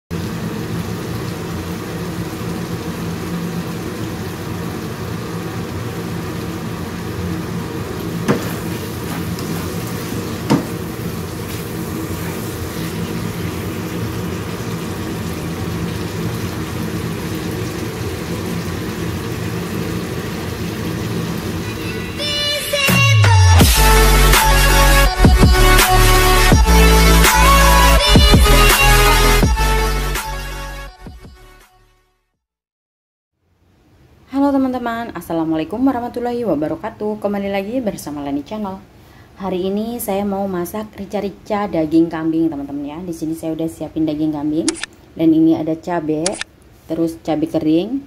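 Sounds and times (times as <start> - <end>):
sauce sizzling and bubbling: 0.1 - 22.8.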